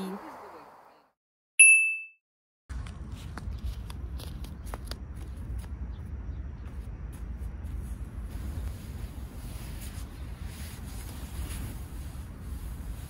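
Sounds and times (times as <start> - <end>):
bright ding: 1.6 - 2.2
low steady rumble: 2.7 - 13.0.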